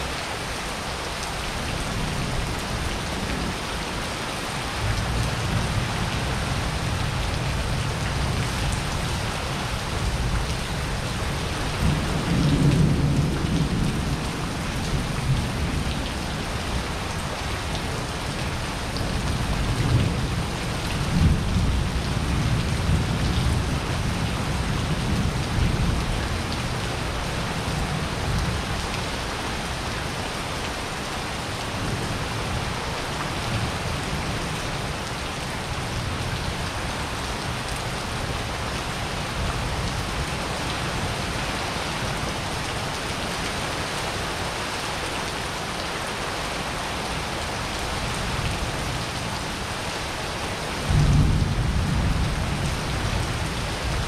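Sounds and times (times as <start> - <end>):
rain on wet paving: 0.0 - 54.0
thunder rumbling: 50.9 - 53.5.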